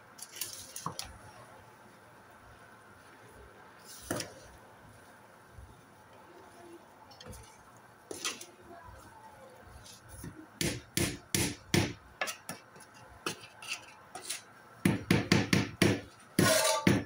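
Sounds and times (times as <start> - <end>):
clattering scrape: 12.2 - 14.5.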